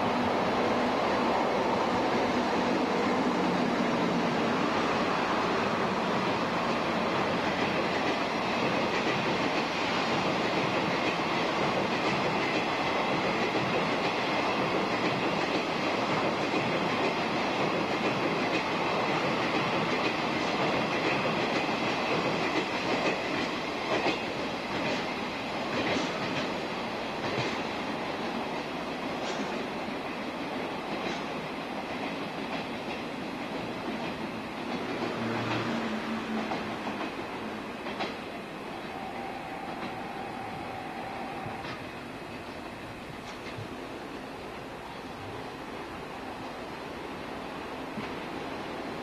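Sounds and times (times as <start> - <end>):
train wheels rumbling on rail: 0.0 - 49.0
wheels clacking over rail joints: 30.9 - 40.1.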